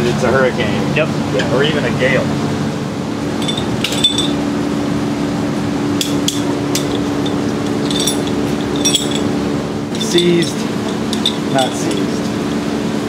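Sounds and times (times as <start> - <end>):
low hum: 1.1 - 13.0
tool clinking on metal rigging: 3.4 - 4.4, 6.0 - 12.3.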